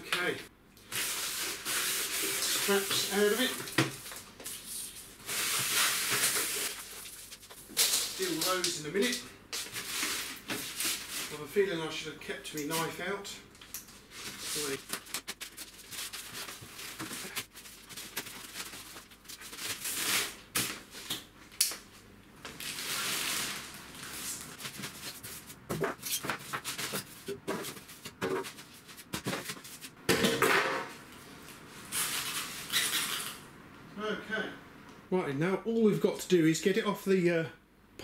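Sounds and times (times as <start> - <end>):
plastic film crinkling: 0.8 - 11.4, 14.1 - 21.0.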